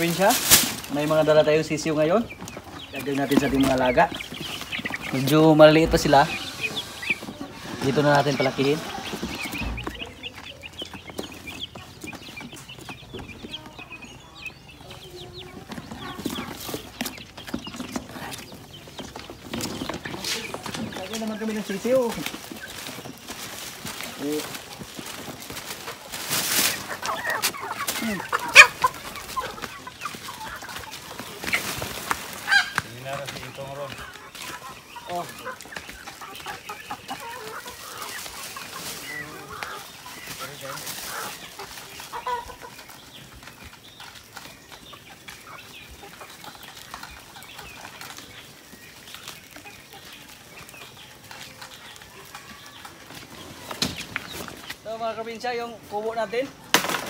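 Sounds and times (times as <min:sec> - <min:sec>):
chickens clucking: 0:00.0 - 0:57.0.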